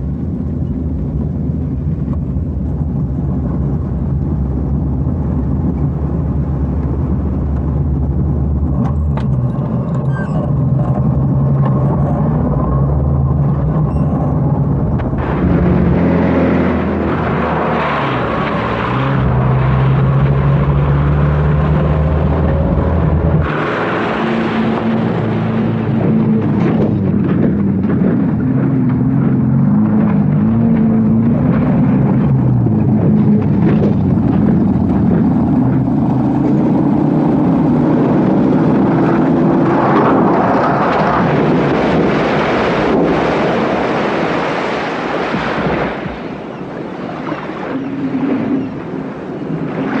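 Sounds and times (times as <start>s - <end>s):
car engine running hard: 0.0s - 46.2s
rush of water and spray: 0.1s - 50.0s.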